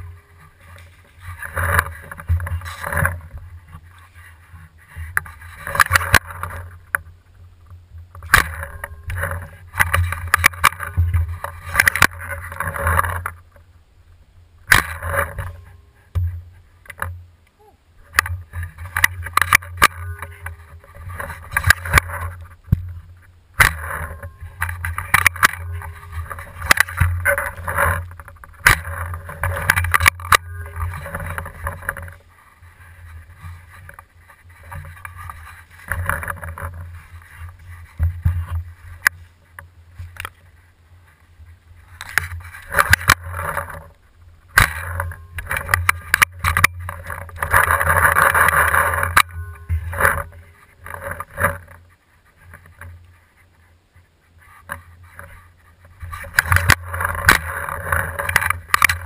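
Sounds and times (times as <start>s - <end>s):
camera handling rubbing and rustling: 0.0s - 7.1s, 8.1s - 13.5s, 14.7s - 17.1s, 18.0s - 59.0s
steady low hum: 0.0s - 59.0s
sharp knocks and clicks: 4.9s - 13.6s, 14.7s - 17.2s, 18.1s - 32.2s, 42.0s - 51.8s, 56.0s - 59.0s.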